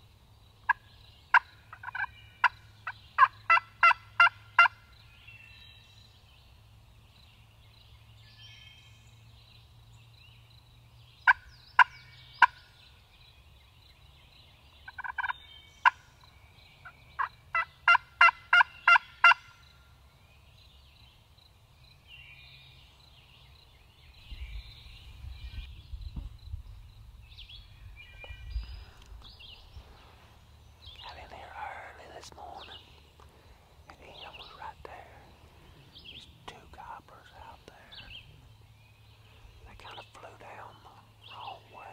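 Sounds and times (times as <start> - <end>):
faint songbird chirping: 0.0 - 41.9
turkey calling: 0.7 - 4.8, 14.9 - 16.0, 17.2 - 19.6.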